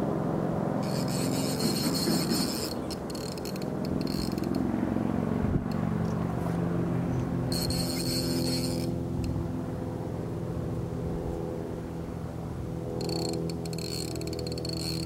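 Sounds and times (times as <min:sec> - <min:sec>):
fishing line buzzing out: 0:00.8 - 0:04.7, 0:07.5 - 0:09.4, 0:13.0 - 0:15.0
fishing reel whirring: 0:00.8 - 0:04.7, 0:07.5 - 0:09.4, 0:13.0 - 0:15.0.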